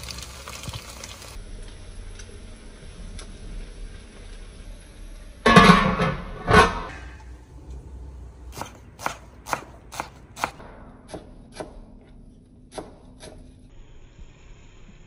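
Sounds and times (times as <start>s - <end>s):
knife chopping on cutting board: 8.6s - 11.8s, 12.7s - 13.4s.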